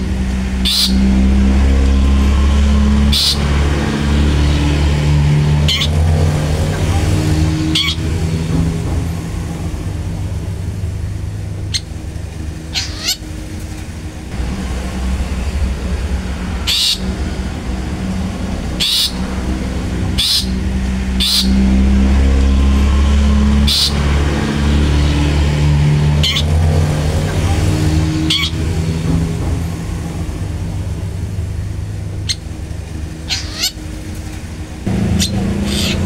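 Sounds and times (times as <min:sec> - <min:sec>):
low engine hum: 0:00.0 - 0:36.0
bird giving harsh calls: 0:00.6 - 0:01.2, 0:03.0 - 0:03.7, 0:05.6 - 0:06.0, 0:12.7 - 0:13.3, 0:18.8 - 0:19.2, 0:20.2 - 0:21.8, 0:23.7 - 0:24.1, 0:33.2 - 0:33.8, 0:35.1 - 0:36.0.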